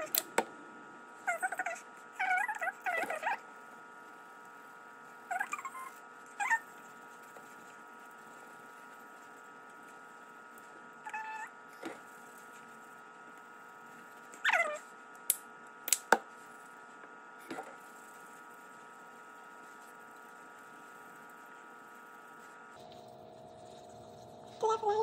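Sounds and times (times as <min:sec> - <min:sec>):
high-pitched animal calls: 0:01.3 - 0:03.4, 0:05.3 - 0:06.7.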